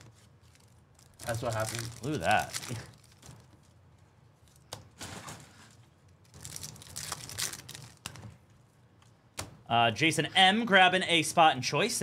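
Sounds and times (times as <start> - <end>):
wrappers crinkling and tearing: 0.0 - 8.4.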